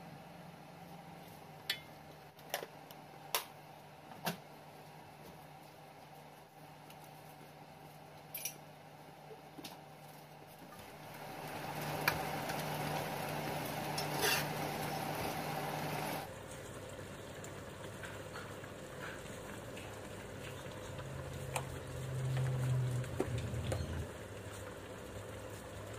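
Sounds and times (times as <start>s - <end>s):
stew simmering: 9.8s - 25.9s
spatula scraping in a wok: 13.8s - 15.1s.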